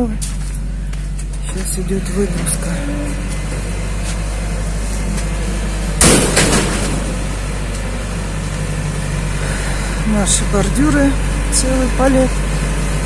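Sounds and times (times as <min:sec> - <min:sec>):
truck engine idling: 0:00.0 - 0:13.0
loud bang: 0:06.0 - 0:07.4.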